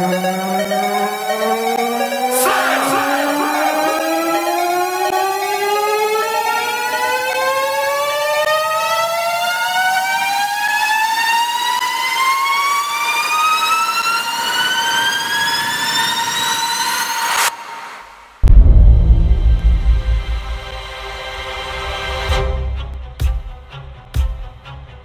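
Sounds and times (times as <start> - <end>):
rising synthesized tone: 0.1 - 7.1, 18.4 - 21.4
steady high tone: 2.1 - 5.3, 18.4 - 21.4.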